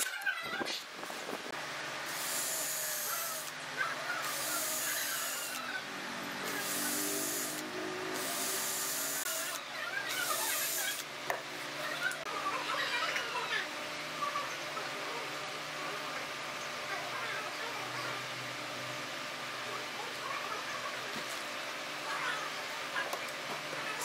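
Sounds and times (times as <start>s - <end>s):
cordless drill driving screws: 2.1s - 3.5s, 4.2s - 5.6s, 6.5s - 7.6s, 8.2s - 11.0s.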